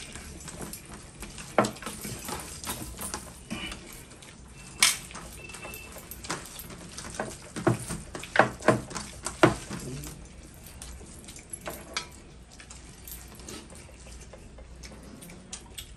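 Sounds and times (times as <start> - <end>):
mouth noises of eating: 9.1 - 11.5.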